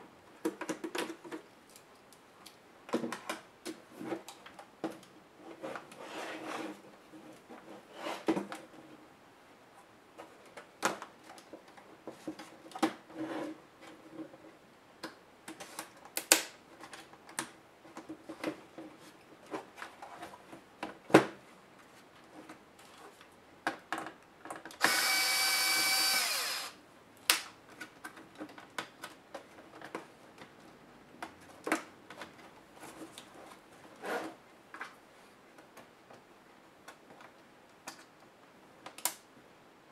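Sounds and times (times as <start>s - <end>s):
electric screwdriver whirring: 24.8s - 26.8s.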